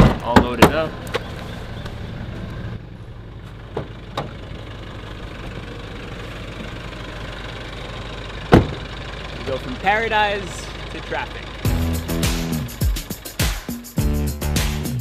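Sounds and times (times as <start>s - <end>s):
car engine idling: 0.0s - 14.6s
car door slam: 8.5s - 8.8s.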